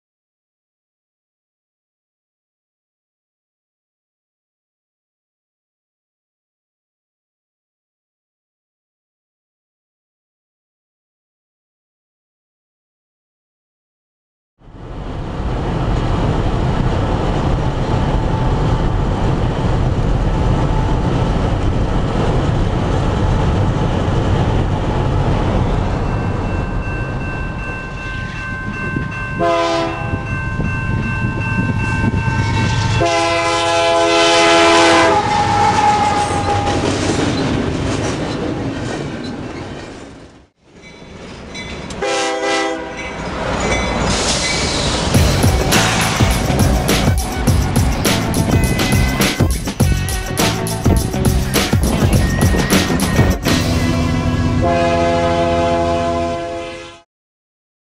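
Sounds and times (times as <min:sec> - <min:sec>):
diesel locomotive engine rumble: 0:14.6 - 0:56.6
train wheel noise: 0:14.8 - 0:29.2, 0:35.0 - 0:42.2, 0:42.8 - 0:54.5
train air horn blasts: 0:29.4 - 0:30.2, 0:32.4 - 0:36.9, 0:42.0 - 0:43.0, 0:45.3 - 0:52.7, 0:53.4 - 0:57.0.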